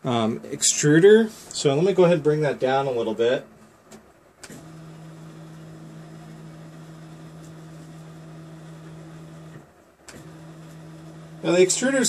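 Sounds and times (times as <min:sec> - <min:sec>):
stepper motors humming: 0:04.5 - 0:12.0.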